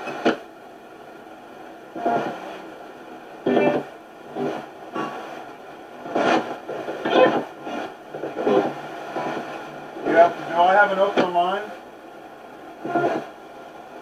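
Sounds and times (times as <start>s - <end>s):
radio static bursts: 2.0s - 2.6s, 3.4s - 5.4s, 6.0s - 11.8s, 12.8s - 13.4s
broadcast voice fragments: 10.0s - 11.8s.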